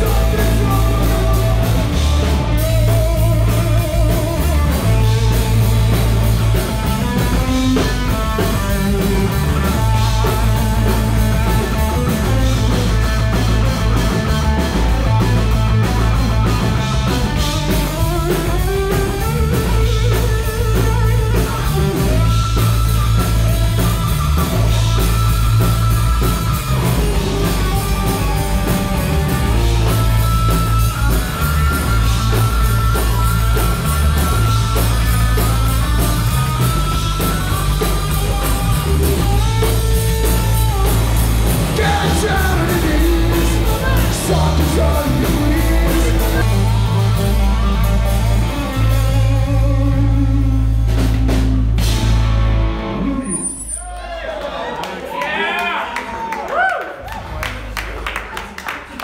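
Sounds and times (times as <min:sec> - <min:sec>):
person singing: 0:00.0 - 0:02.4, 0:41.5 - 0:46.8
electric guitar: 0:00.0 - 0:53.6
drum kit: 0:00.0 - 0:53.7
bass guitar: 0:00.0 - 0:54.2.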